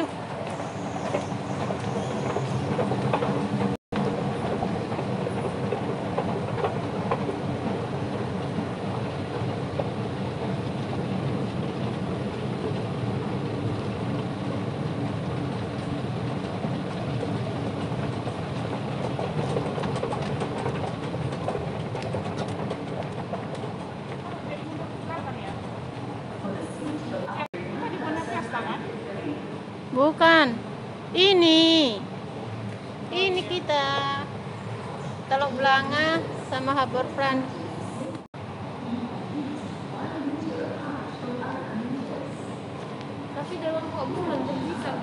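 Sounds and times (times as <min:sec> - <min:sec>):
train wheels rumbling on rail: 0:00.0 - 0:45.0.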